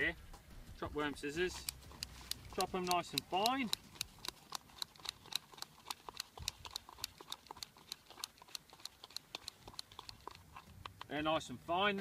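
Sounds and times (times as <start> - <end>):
scissors snipping: 1.5 - 10.2.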